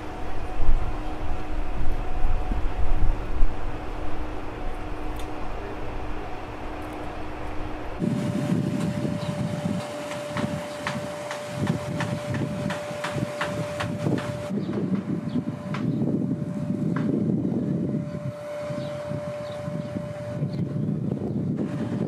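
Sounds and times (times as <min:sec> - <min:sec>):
wind rumbling on microphone: 0:00.0 - 0:22.0.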